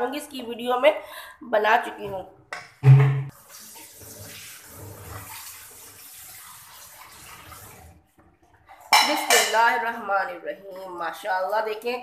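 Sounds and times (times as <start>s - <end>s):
woman speaking: 0.0s - 2.3s, 9.0s - 12.0s
gravy sloshing being stirred: 3.3s - 9.6s.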